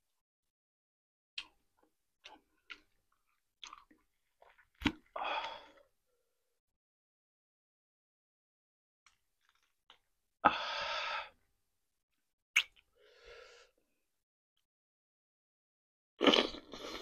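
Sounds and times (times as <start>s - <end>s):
mouth clicks: 12.6s - 12.9s
breathy exhale: 13.0s - 13.8s.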